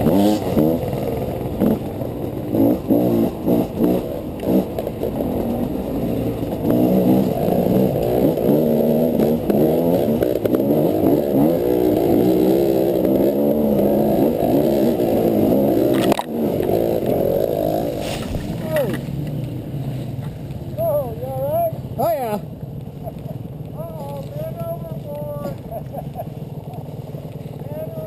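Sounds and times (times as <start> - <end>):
two-stroke motorcycle engine revving: 0.0 - 28.0.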